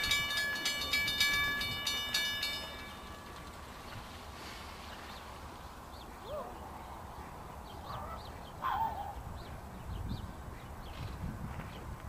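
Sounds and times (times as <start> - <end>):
birds calling: 4.8 - 11.1.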